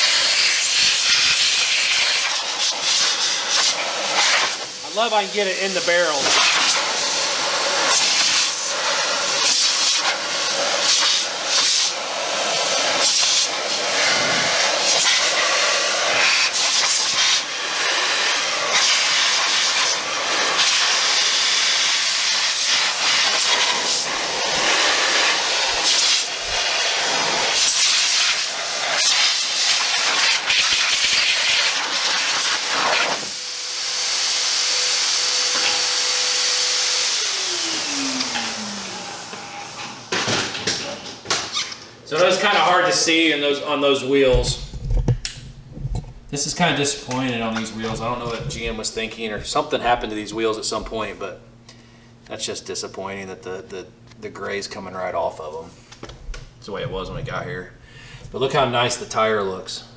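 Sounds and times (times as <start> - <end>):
air dryer blasting: 0.0 - 59.9
steady whine: 3.4 - 9.4, 42.0 - 59.9.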